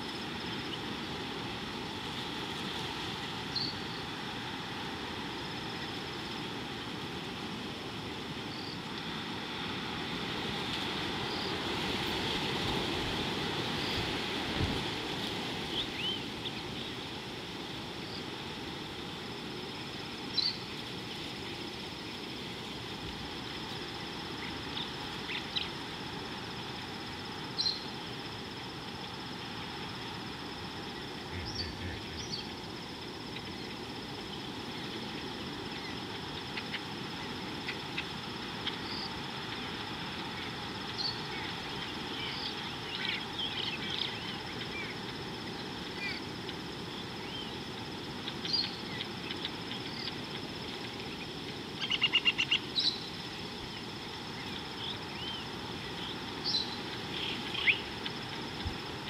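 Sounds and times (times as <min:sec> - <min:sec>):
soft hiss: 0:00.0 - 0:59.0
high thin hum: 0:31.2 - 0:32.6
bird chirps: 0:31.4 - 0:32.5.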